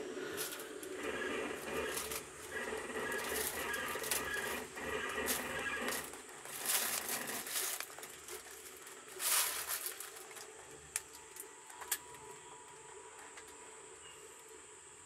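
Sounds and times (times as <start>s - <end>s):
faint high-pitched whine: 0.0s - 15.0s
rustle: 0.4s - 10.5s.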